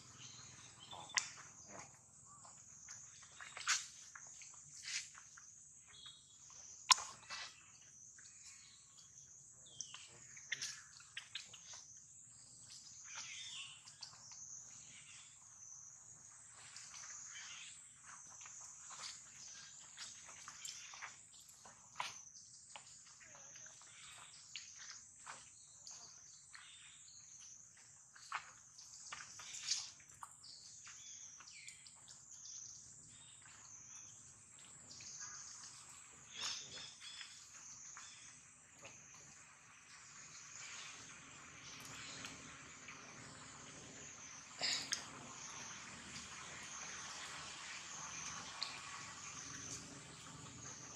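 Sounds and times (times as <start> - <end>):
faint high insect drone: 37.5 - 50.9.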